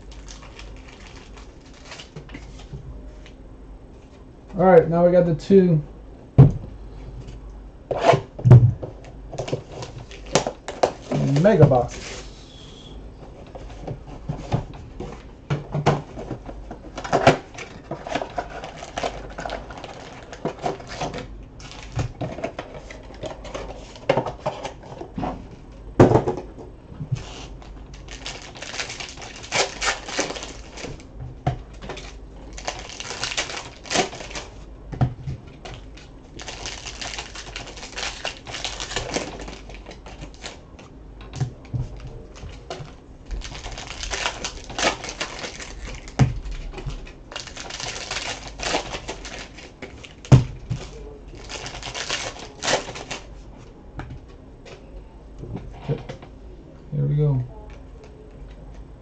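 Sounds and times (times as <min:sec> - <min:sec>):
plastic wrappers crinkling: 0:00.0 - 0:02.7, 0:09.4 - 0:12.3, 0:16.9 - 0:25.1, 0:27.2 - 0:31.1, 0:31.8 - 0:34.6, 0:35.6 - 0:40.9, 0:41.9 - 0:53.3.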